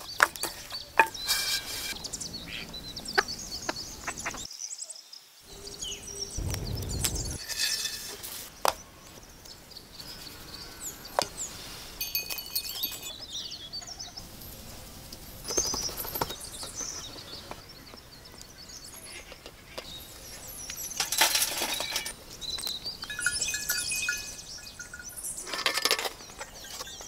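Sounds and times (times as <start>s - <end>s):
birds chirping: 0.0s - 27.0s
charcoal clinking on metal: 12.0s - 13.2s, 20.8s - 22.1s.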